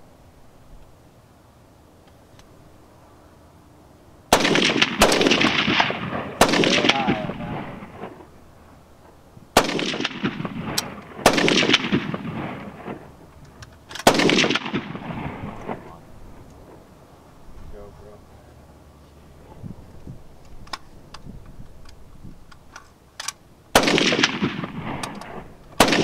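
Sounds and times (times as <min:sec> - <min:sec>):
rifle shots with echo: 0:04.3 - 0:08.4, 0:09.5 - 0:13.2, 0:13.9 - 0:16.0, 0:23.7 - 0:26.0.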